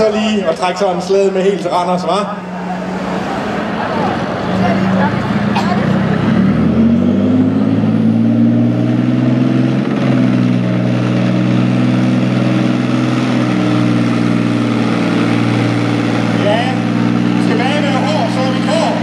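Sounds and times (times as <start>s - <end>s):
diesel engine under heavy load: 0.0s - 19.0s.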